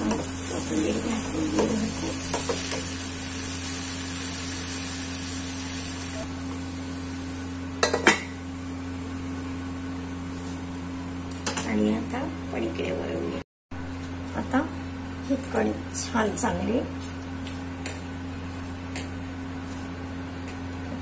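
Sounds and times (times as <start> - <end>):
light sizzle: 0.0 - 8.0.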